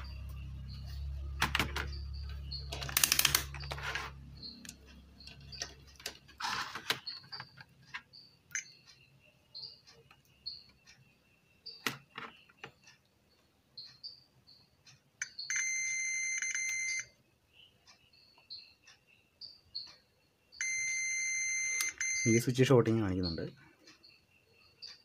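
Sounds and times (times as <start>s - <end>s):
clicks and rattles of handling: 2.7s - 8.1s
faint high chirps: 7.0s - 25.0s.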